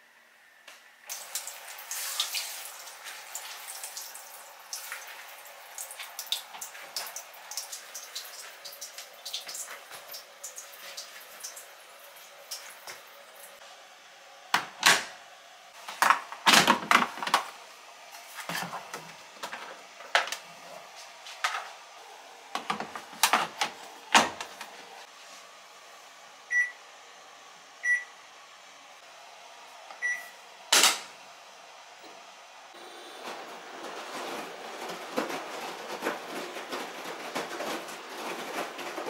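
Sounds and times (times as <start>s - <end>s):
knocks and clicks of washing machine: 14.5s - 15.2s, 22.5s - 24.7s.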